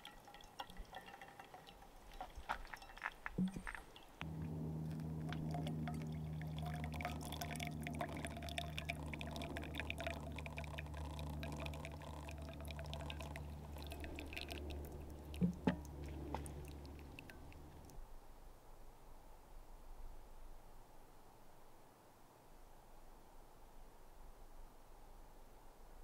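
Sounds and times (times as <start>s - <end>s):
hot water pouring from kettle: 0.0s - 17.9s.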